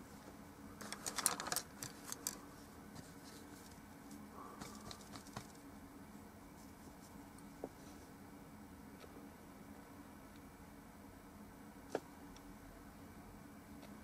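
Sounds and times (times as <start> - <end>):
low steady hum: 0.0 - 14.0
small hard objects clicking: 0.8 - 2.4.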